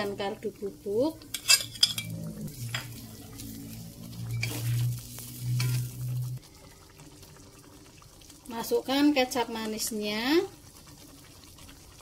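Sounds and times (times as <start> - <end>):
sauce simmering: 0.0 - 12.0
metal spatula scraping wok: 1.3 - 6.2
low hum: 1.6 - 7.3.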